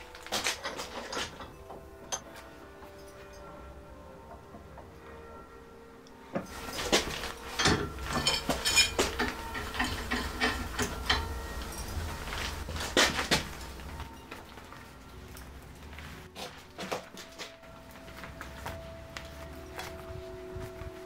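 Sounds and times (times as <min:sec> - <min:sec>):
steel tools clanking on bench vise: 0:00.1 - 0:02.4, 0:06.4 - 0:14.7.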